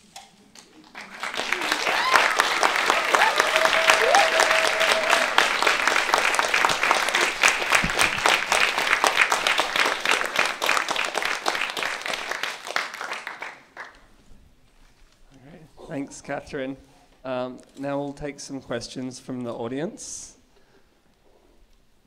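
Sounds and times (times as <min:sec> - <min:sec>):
audience applauding: 0:00.8 - 0:14.0.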